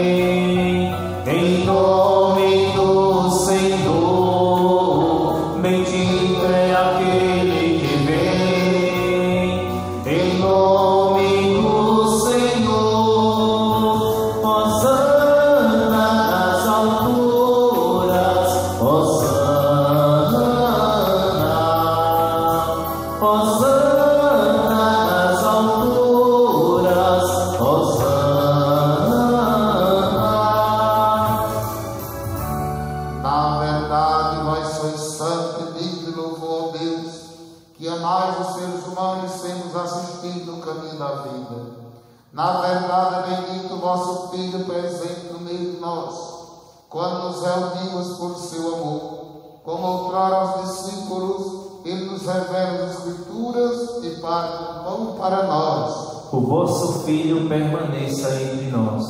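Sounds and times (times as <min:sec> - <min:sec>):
electronic keyboard chords: 0:00.0 - 0:34.8
man singing a hymn: 0:00.0 - 0:59.0.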